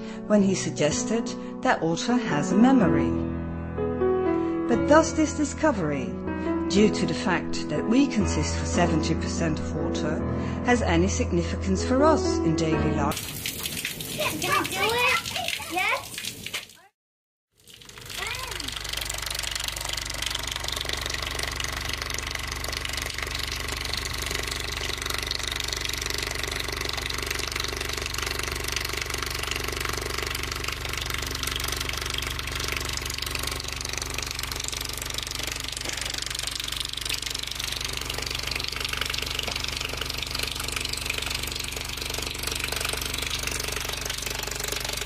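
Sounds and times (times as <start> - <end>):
water splattering: 13.1 - 16.9, 17.6 - 45.0.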